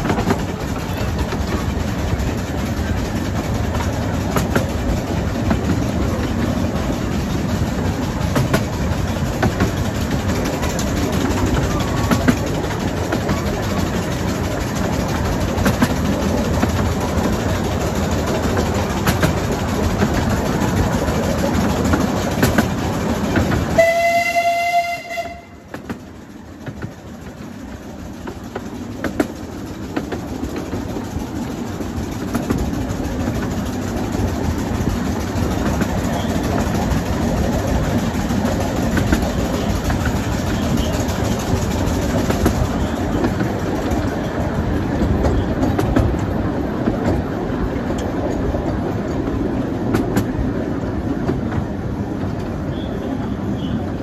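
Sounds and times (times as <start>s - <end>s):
train wheels rumbling and clicking: 0.0s - 54.0s
steam whistle blast: 23.8s - 25.6s.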